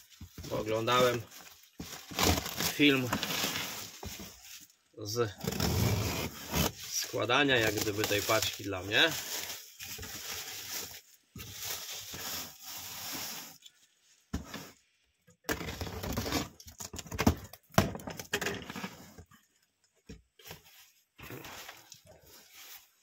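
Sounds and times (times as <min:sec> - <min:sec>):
cardboard scraping and bumping: 0:00.1 - 0:04.4, 0:05.4 - 0:07.0
tape and plastic film tearing: 0:01.9 - 0:04.1, 0:05.4 - 0:11.0.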